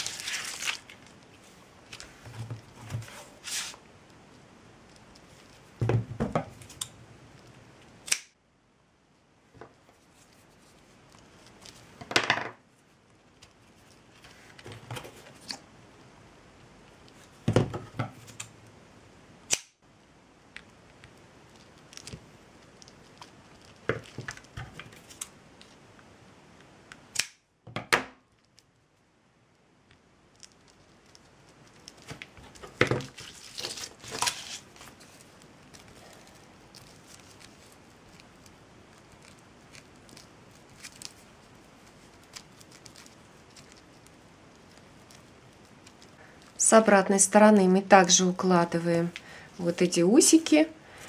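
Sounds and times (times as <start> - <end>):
cord rustling: 0.0 - 7.6, 9.6 - 15.7, 20.6 - 25.9, 30.2 - 46.6.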